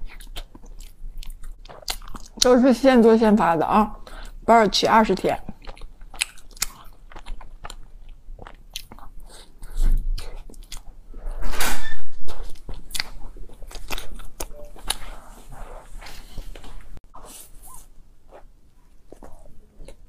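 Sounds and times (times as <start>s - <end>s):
person chewing bread: 0.0s - 2.5s, 5.4s - 11.1s, 12.4s - 20.0s
wet mouth clicks and smacks: 5.6s - 7.8s, 12.5s - 15.0s.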